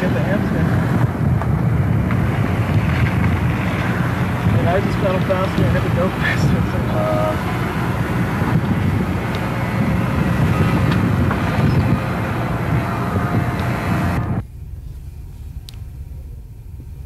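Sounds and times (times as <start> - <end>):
wind noise on microphone: 0.0 - 17.0
faint steady hum: 5.8 - 17.0.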